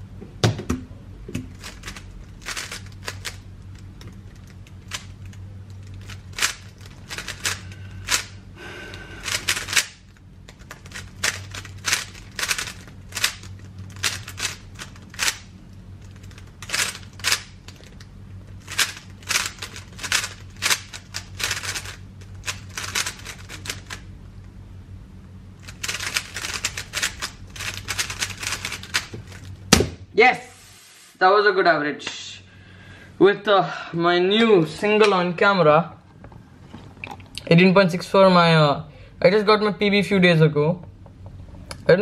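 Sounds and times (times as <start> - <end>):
puzzle cube clicking: 18.7 - 24.0, 25.6 - 29.1.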